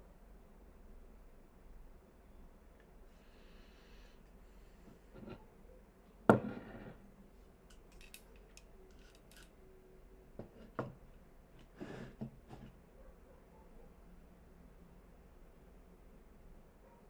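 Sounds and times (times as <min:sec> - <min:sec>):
handling scraping noises: 0:04.9 - 0:05.5, 0:11.6 - 0:12.8.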